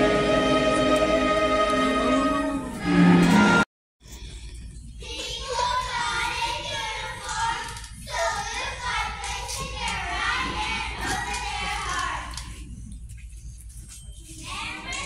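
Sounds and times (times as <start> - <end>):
children singing together: 0.0 - 3.6.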